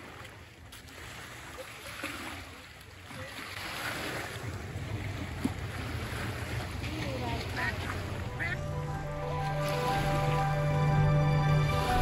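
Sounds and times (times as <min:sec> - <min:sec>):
small waves washing against rocks: 0:00.0 - 0:08.4.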